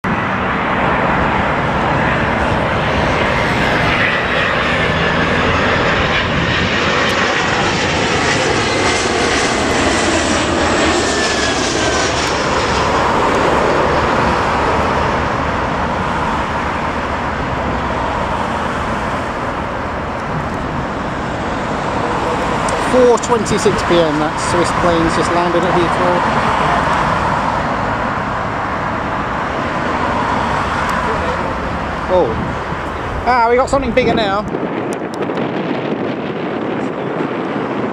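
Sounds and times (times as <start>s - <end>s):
jet engines passing overhead: 0.0s - 37.9s.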